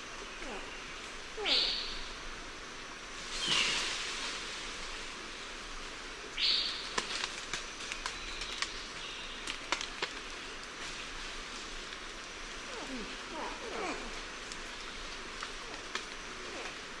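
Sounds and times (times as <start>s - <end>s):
forest hiss: 0.0s - 17.0s
rustle of foliage: 0.0s - 17.0s
twigs and branches snapping: 6.8s - 10.9s.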